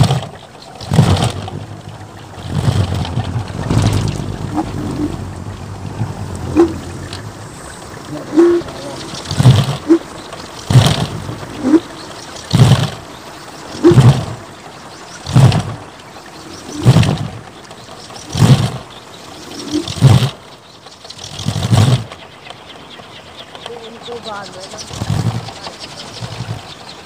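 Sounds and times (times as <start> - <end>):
wooden propeller whooshing roar: 0.0 - 27.0.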